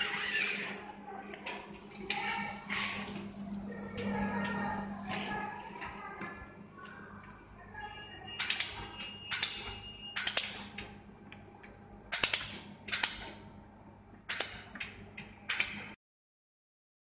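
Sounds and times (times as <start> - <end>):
laser welder sharp cracks: 8.4 - 10.8, 12.1 - 13.4, 14.3 - 14.8, 15.5 - 16.0.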